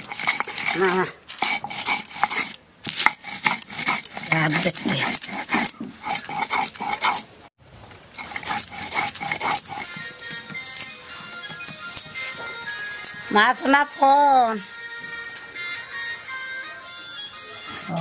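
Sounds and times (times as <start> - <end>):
grinding stone scraping on slab: 0.0 - 7.5, 8.2 - 13.3.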